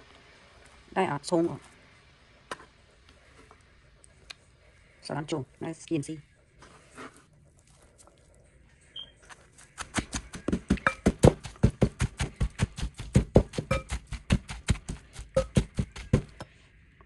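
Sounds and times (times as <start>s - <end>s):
wooden pestle pounding in metal mortar: 10.1s - 16.4s.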